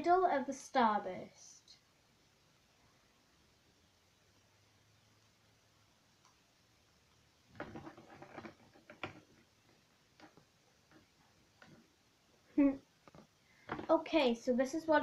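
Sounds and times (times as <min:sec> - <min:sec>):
plastic clicks and rustling: 0:07.5 - 0:11.9.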